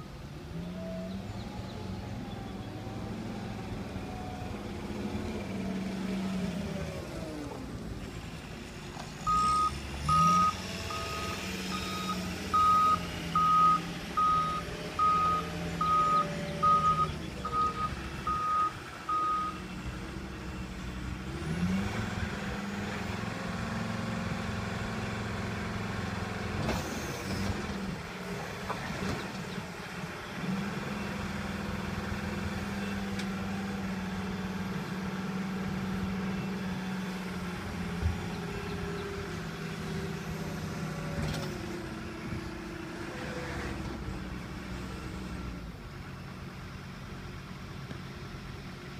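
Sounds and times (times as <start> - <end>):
diesel engine running: 0.0 - 48.9
reverse alarm beeping: 9.3 - 19.6.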